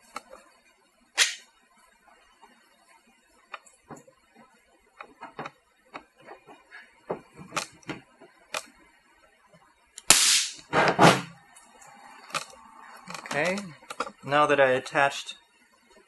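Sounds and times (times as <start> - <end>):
stud welder cracks: 1.2 - 1.5, 10.0 - 10.8.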